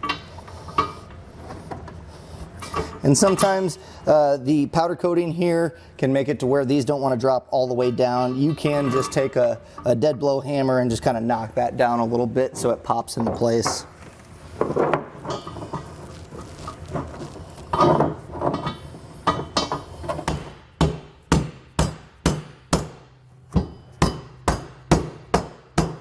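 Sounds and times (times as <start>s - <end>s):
hammer striking bolt on steel: 19.6s - 26.0s.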